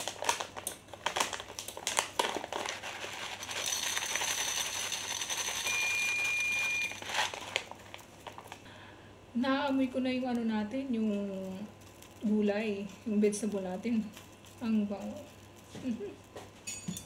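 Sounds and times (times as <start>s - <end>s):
plastic packet rustling: 0.0s - 8.7s, 10.3s - 16.6s
seeds pouring into metal pan: 1.4s - 8.6s, 11.0s - 16.3s
thin high ringing tone: 3.6s - 7.1s, 16.6s - 17.0s.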